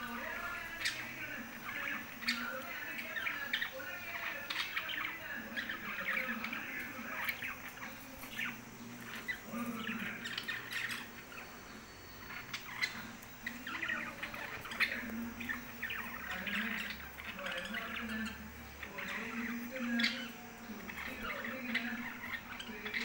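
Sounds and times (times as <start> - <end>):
budgerigars chirping and warbling: 0.0 - 23.0.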